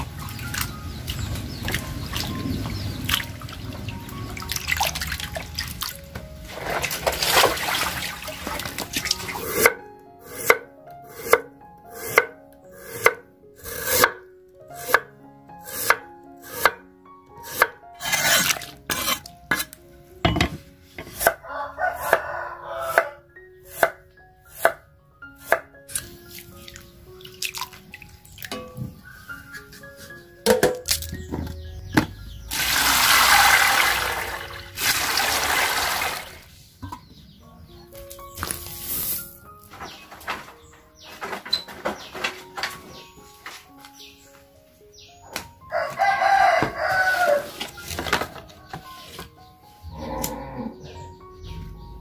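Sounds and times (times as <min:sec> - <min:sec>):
dense rustling splashing noise: 0:00.0 - 0:09.5, 0:32.5 - 0:36.6
background music: 0:00.0 - 0:52.0
knife chopping on wooden board: 0:12.9 - 0:14.2, 0:20.4 - 0:21.4.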